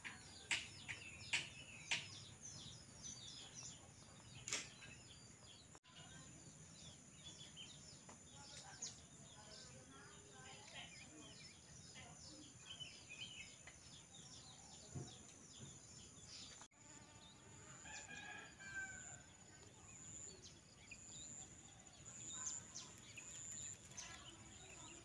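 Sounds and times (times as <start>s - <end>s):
birds chirping: 0.0s - 25.0s
rooster crowing: 17.7s - 19.3s.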